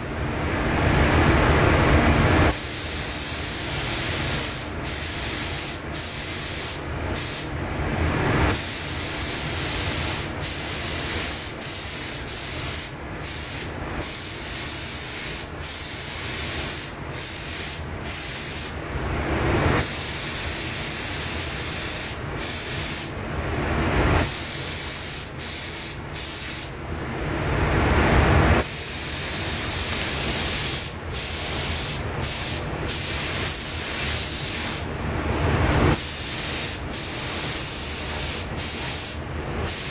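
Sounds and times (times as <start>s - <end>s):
paint spray gun hissing: 2.6s - 7.5s, 8.5s - 18.8s, 19.8s - 23.1s, 24.2s - 26.7s, 28.7s - 34.9s, 36.0s - 39.9s.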